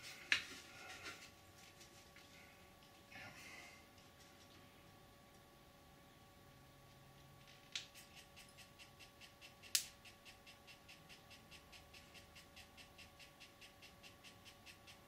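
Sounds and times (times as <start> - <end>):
sharp click: 7.7 - 15.0
pen feed mechanism ticking: 7.8 - 15.0.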